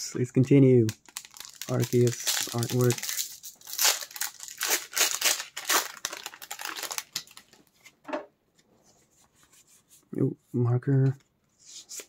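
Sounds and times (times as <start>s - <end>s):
foil wrapper crinkling: 0.8s - 7.6s.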